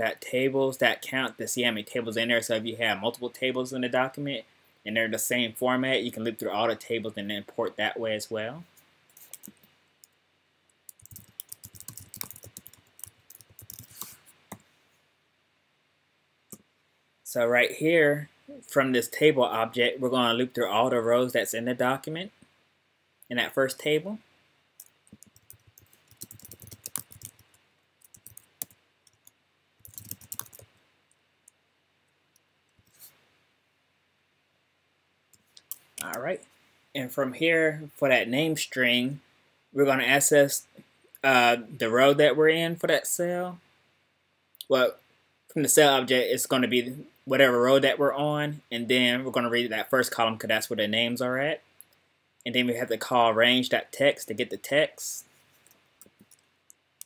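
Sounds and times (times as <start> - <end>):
keyboard typing: 9.1 - 10.2, 10.9 - 14.6, 24.8 - 30.7.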